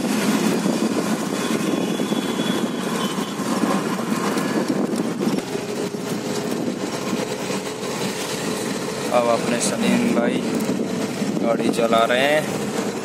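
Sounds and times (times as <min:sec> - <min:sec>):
road noise: 0:00.0 - 0:13.0
truck engine: 0:00.0 - 0:13.0.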